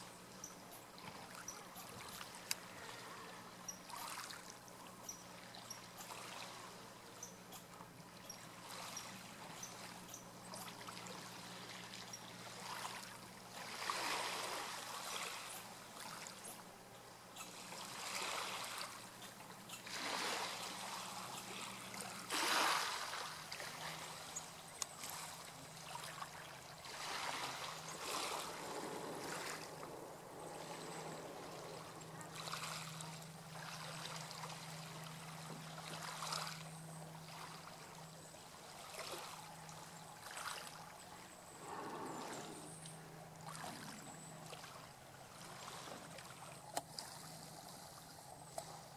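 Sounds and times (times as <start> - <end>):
water lapping and trickling: 0.0 - 48.9
faint low hum: 23.0 - 48.9.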